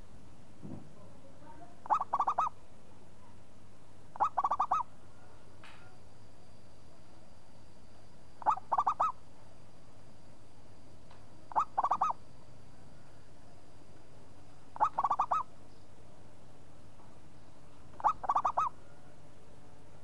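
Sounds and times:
dove cooing: 1.8 - 2.6, 4.2 - 4.9, 8.4 - 9.2, 11.5 - 12.2, 14.8 - 15.5, 17.9 - 19.0.

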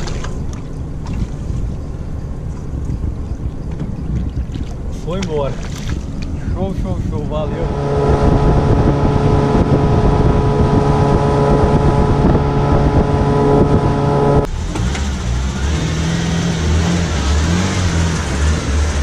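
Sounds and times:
wind on microphone: 0.0 - 14.5
outboard motor running: 0.0 - 14.6
car engine revving unevenly: 7.3 - 19.0.

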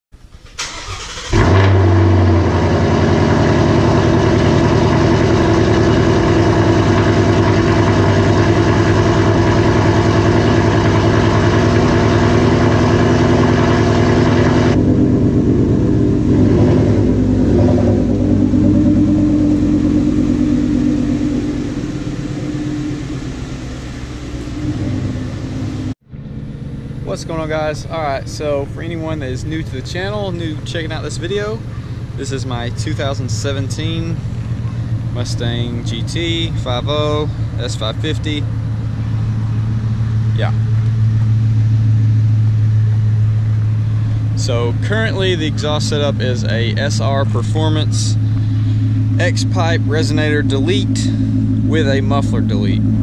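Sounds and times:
engine cranking: 0.3 - 26.0
vone engine idling: 0.6 - 53.0.

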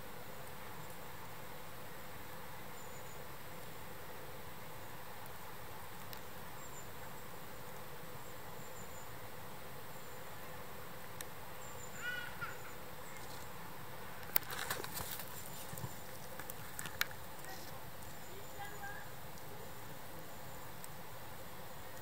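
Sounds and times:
steady hiss: 0.0 - 22.0
insects chirping: 0.2 - 22.0
bird call: 11.6 - 13.2
dry leaves crackling: 14.2 - 20.0.

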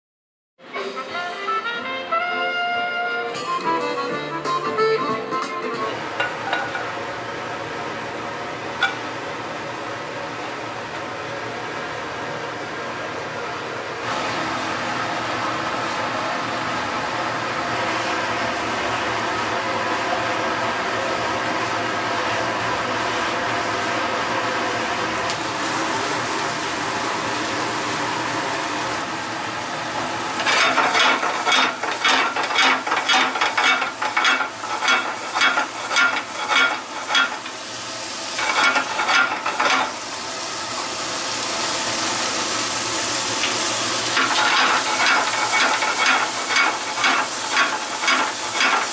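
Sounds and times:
gas burner running: 5.8 - 48.9
food sizzling in a frying pan: 20.0 - 48.9
sharp clattering strokes in pan: 30.4 - 37.6, 38.4 - 40.0, 44.2 - 48.9.

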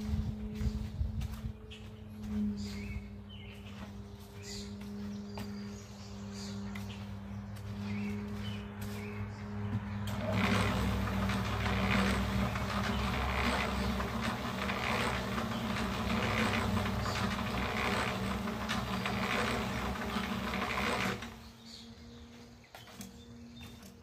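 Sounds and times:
electric motor hum: 0.0 - 22.4
concrete churning in mixer drum: 10.0 - 21.5.

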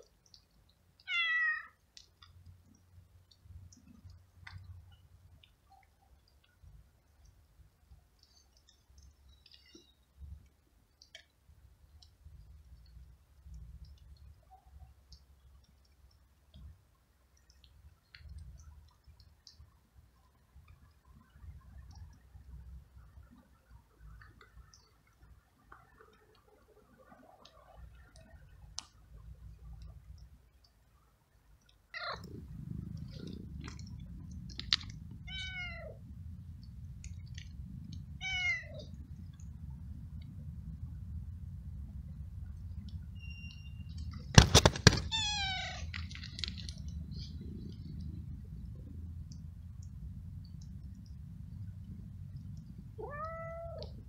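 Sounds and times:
faint small clicks: 0.0 - 36.0, 36.6 - 41.2, 41.9 - 54.0
cat meowing: 1.0 - 1.8, 35.3 - 36.0, 38.2 - 38.8, 44.9 - 45.9, 53.0 - 53.9
low rumble: 32.0 - 44.3, 45.1 - 54.0.

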